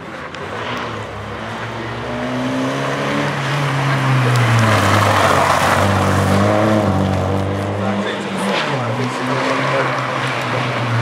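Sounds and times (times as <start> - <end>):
race car engine revving: 0.0 - 11.0.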